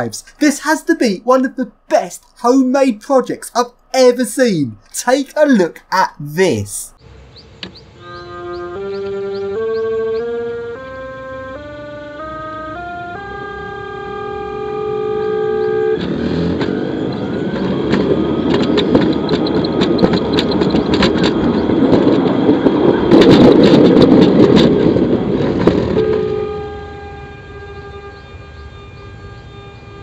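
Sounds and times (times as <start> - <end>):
rattling rumble of car on track: 15.6 - 27.0.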